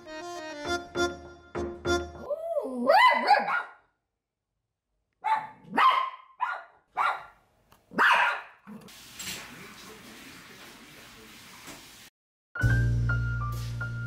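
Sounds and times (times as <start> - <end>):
dog barking sharply: 3.0 - 3.8, 5.2 - 8.7.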